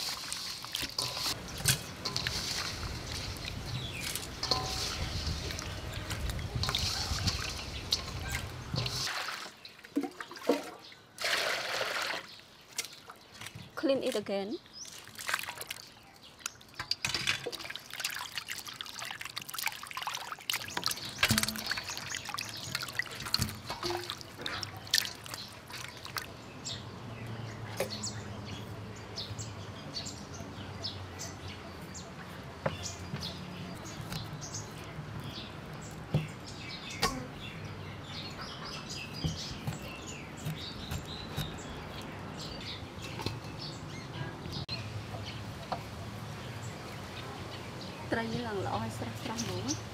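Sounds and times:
birds chirping: 0:00.0 - 0:11.2, 0:20.1 - 0:49.9
water sloshing in a steel bowl: 0:00.0 - 0:26.8.

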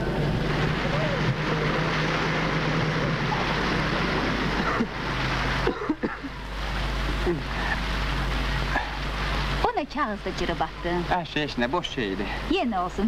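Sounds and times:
traffic rushing: 0:00.0 - 0:11.8
fountain water splashing: 0:00.0 - 0:13.0
low hum: 0:00.0 - 0:13.0.

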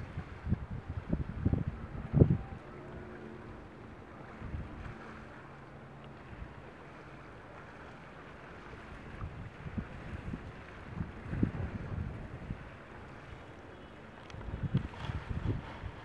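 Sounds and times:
wind buffeting microphone: 0:00.0 - 0:05.2, 0:08.8 - 0:13.4, 0:14.3 - 0:16.0.

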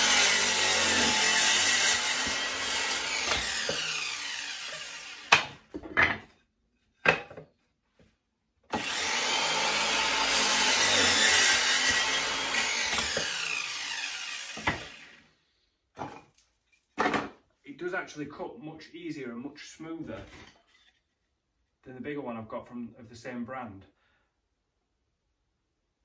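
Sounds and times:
mitre saw cutting wood: 0:00.0 - 0:05.7, 0:08.7 - 0:15.3.

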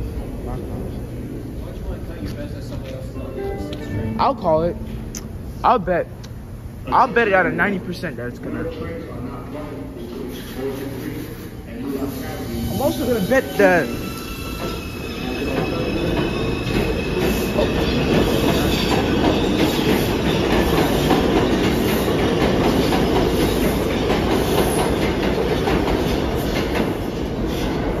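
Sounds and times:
subway train rumbling: 0:00.0 - 0:28.0
high wheel squeal: 0:12.0 - 0:20.2.

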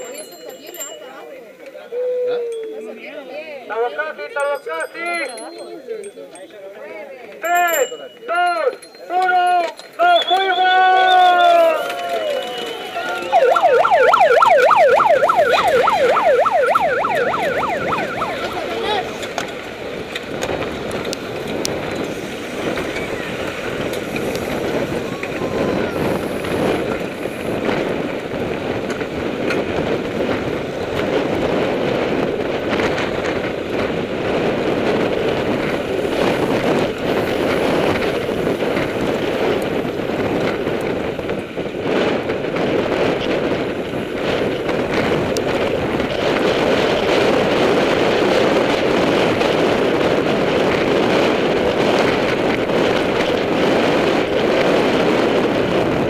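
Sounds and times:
bike tyres rumbling on dirt road: 0:09.8 - 0:56.0
wind rushing over microphone: 0:10.0 - 0:56.0.

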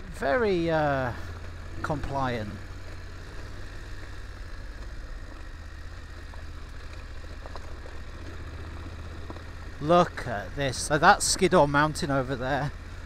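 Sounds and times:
motorcycle engine droning: 0:00.0 - 0:13.0
tyres rolling on gravel: 0:00.0 - 0:13.0
faint ticks: 0:02.6 - 0:09.8.

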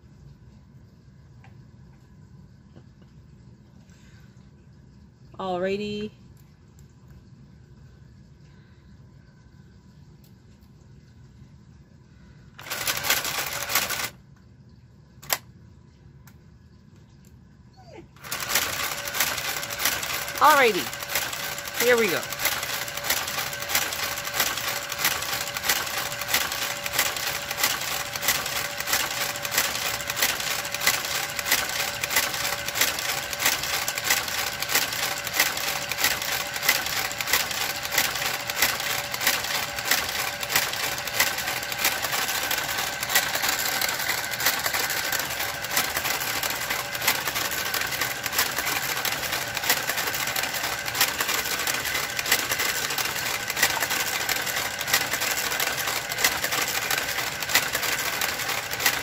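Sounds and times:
small motor running: 0:12.6 - 0:14.1, 0:18.2 - 0:59.0
rapid even clicking: 0:18.2 - 0:59.0.

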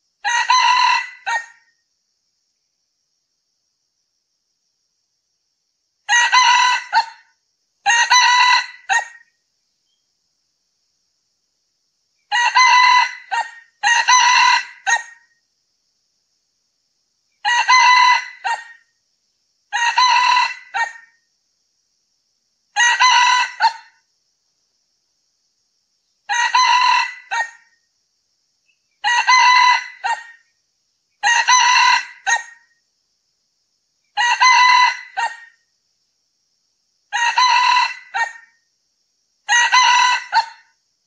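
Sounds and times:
rooster crowing: 0:00.2 - 0:01.7, 0:06.1 - 0:09.2, 0:12.3 - 0:15.2, 0:17.4 - 0:18.8, 0:19.7 - 0:21.1, 0:22.8 - 0:24.0, 0:26.3 - 0:27.7, 0:29.0 - 0:30.4, 0:31.2 - 0:32.6, 0:34.2 - 0:35.6, 0:37.1 - 0:38.5, 0:39.5 - 0:40.7.

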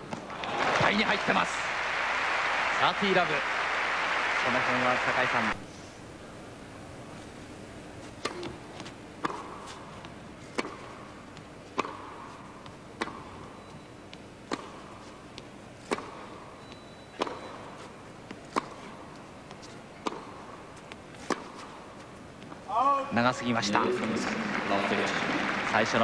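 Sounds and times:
tennis ball bouncing: 0:08.0 - 0:22.7
tennis ball hit by rackets: 0:08.2 - 0:13.5, 0:14.1 - 0:22.6.

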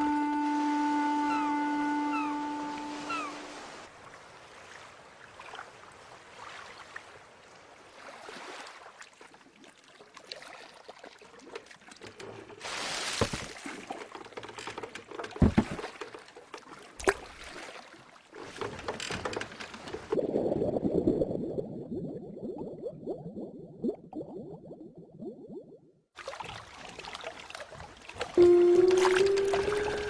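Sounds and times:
oars splashing in water: 0:07.8 - 0:20.2, 0:26.2 - 0:30.0
sharp knocks: 0:15.4 - 0:15.9.

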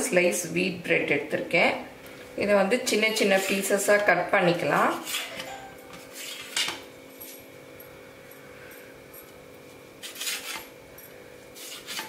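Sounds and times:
faint steady hum: 0:00.0 - 0:12.0
knife scraping on steel plate: 0:04.8 - 0:06.8, 0:10.0 - 0:10.7, 0:11.6 - 0:12.0.

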